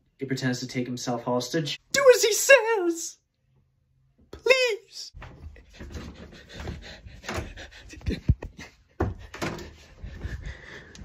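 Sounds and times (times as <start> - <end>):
person laughing: 7.9 - 9.0.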